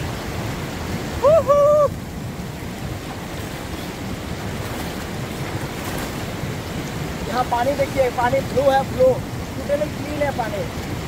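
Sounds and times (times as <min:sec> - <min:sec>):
river water rushing: 0:00.0 - 0:11.0
wind on microphone: 0:00.0 - 0:11.0
person swimming splashing: 0:03.2 - 0:07.2.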